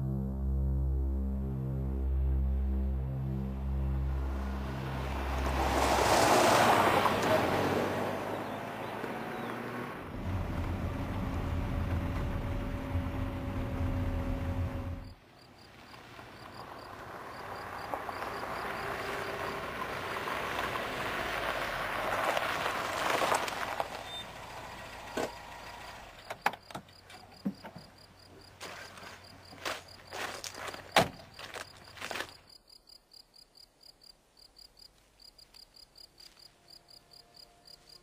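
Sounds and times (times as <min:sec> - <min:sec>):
car driving up: 0:00.1 - 0:26.7
car interior engine hum: 0:06.9 - 0:15.2, 0:16.9 - 0:26.7
insects chirping: 0:15.0 - 0:22.4, 0:23.2 - 0:38.0.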